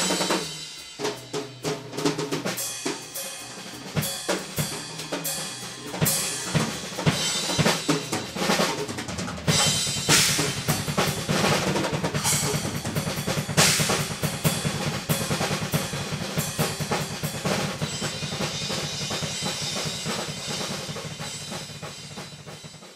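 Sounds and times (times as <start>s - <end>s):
rapid bass drum strokes: 0.0s - 22.9s
snare and tom fills: 0.0s - 22.9s
cymbal crashes: 12.1s - 14.6s.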